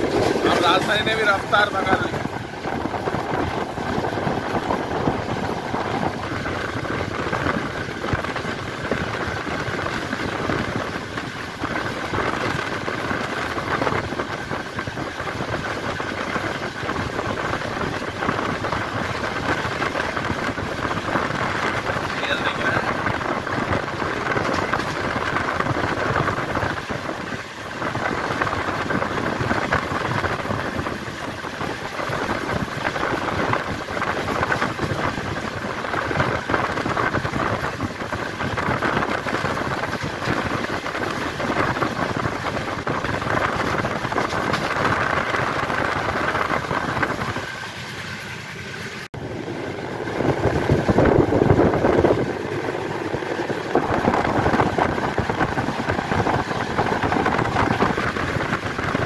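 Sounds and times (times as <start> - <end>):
wind rushing on microphone: 0.0 - 48.2, 48.9 - 59.0
train wheels rumbling on rail: 0.0 - 59.0.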